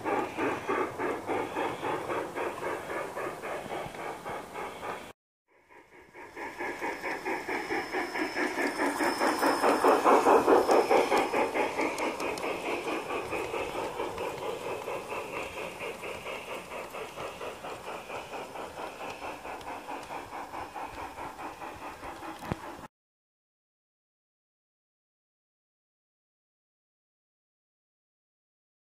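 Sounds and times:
model steam locomotive chuffing: 0.0 - 22.9.

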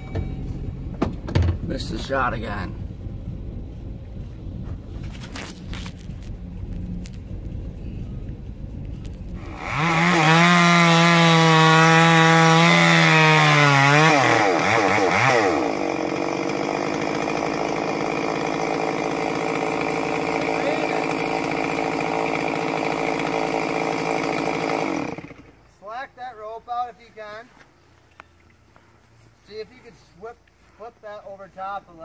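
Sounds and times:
chainsaw running: 9.3 - 25.6.

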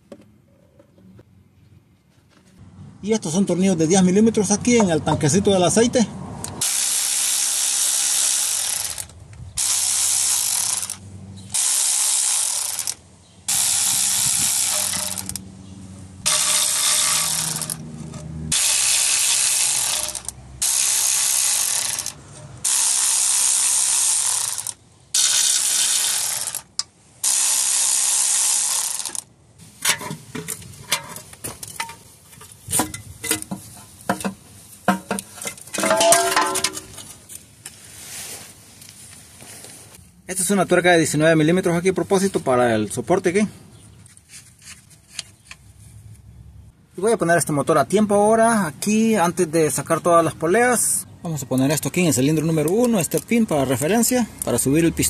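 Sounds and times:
ratchet wrench spinning: 6.6 - 15.4, 16.2 - 29.3
metal parts clicking: 14.5 - 15.4, 16.3 - 20.4, 28.9 - 37.2.

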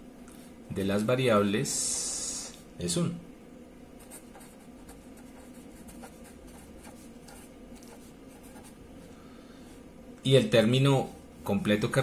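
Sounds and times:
pen scratching on paper: 4.0 - 8.8.

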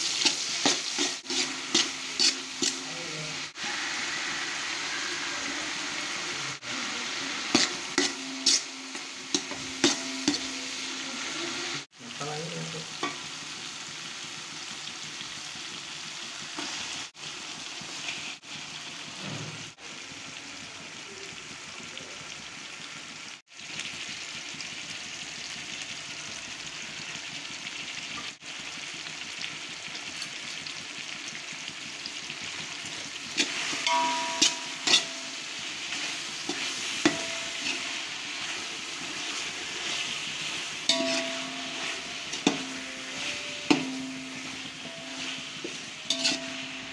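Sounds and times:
utensil scraping and clinking pot: 0.0 - 3.3, 7.4 - 11.1, 32.9 - 46.9
oil sizzling in a pot: 0.0 - 46.9.

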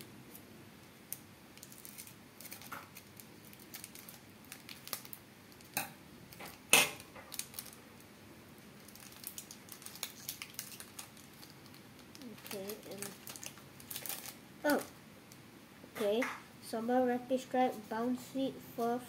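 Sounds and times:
wrapper and cards rustling: 1.6 - 5.7, 8.8 - 15.0
scissors snipping foil pack: 9.0 - 14.8.

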